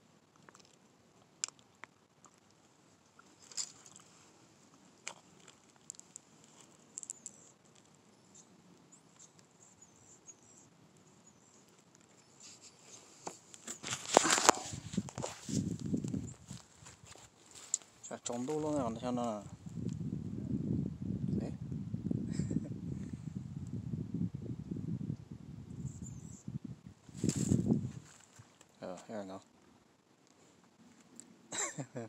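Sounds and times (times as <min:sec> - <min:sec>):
handling clicks and rustles: 0:03.2 - 0:04.1, 0:11.6 - 0:18.9.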